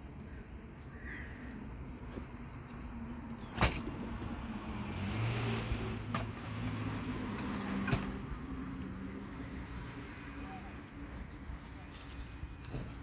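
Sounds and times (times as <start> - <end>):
vehicle passing: 3.9 - 11.8.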